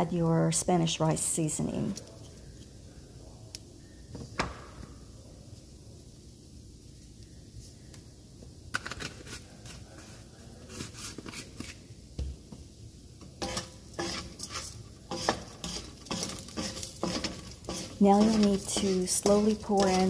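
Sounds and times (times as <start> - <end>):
oil sizzling: 11.8 - 20.0
rice grains rattling in pan: 13.4 - 20.0
wooden spoon scraping a pan: 13.4 - 20.0.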